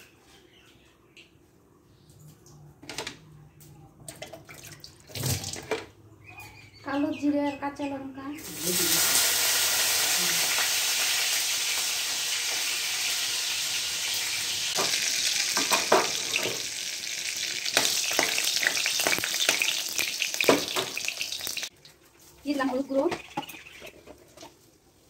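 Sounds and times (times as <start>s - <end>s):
seeds sizzling and popping in oil: 8.4s - 21.8s.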